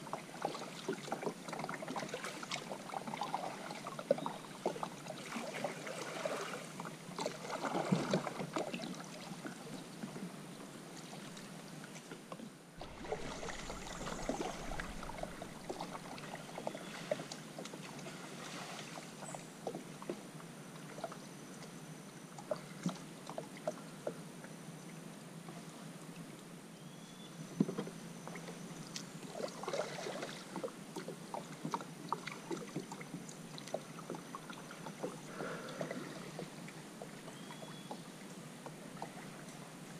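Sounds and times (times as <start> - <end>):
paddle splashing and dripping: 0.0 - 9.7, 12.8 - 20.2, 27.7 - 39.6.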